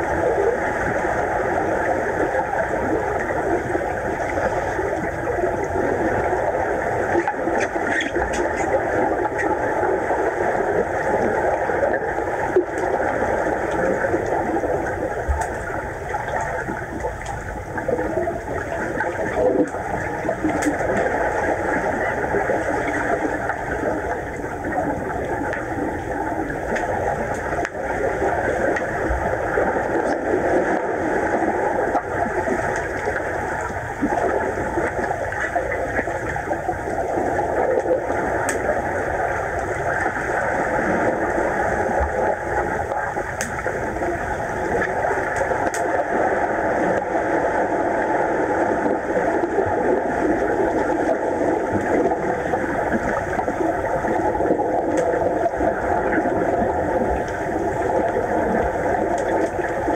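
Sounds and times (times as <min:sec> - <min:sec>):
underwater churning water: 0:00.0 - 0:59.9
faint clicks: 0:37.7 - 0:38.7, 0:43.2 - 0:43.6, 0:54.9 - 0:55.2.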